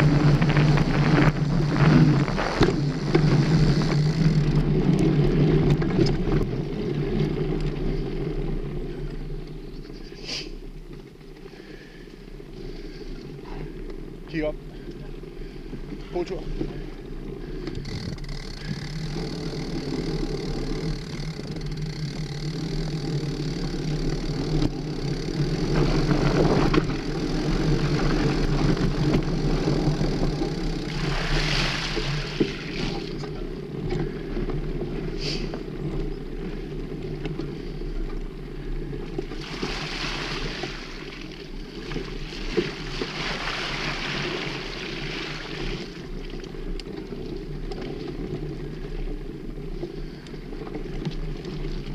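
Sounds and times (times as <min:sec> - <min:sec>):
bike tyres rumbling on dirt: 0:00.0 - 0:51.9.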